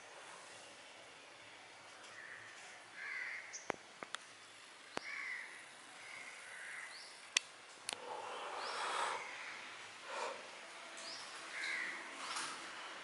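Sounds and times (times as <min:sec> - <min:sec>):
crows cawing: 0:03.0 - 0:03.6, 0:05.0 - 0:07.0, 0:11.5 - 0:12.0.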